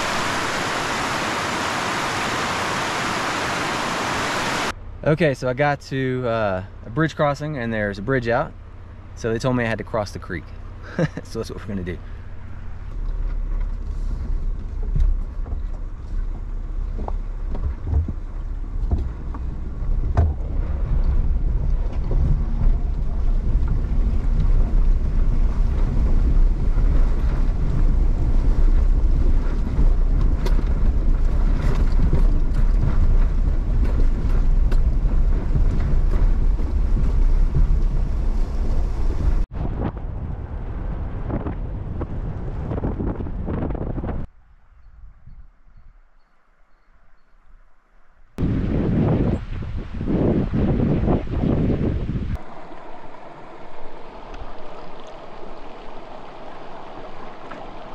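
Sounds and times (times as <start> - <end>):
water rushing and splashing: 0.0 - 5.7, 9.2 - 39.7, 48.4 - 57.9
truck engine rumble: 0.0 - 44.8, 50.5 - 57.9.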